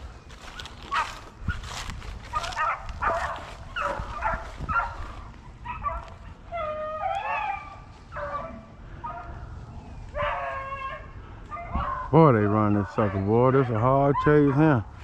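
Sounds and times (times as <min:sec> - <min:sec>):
hounds baying: 0:00.3 - 0:15.0.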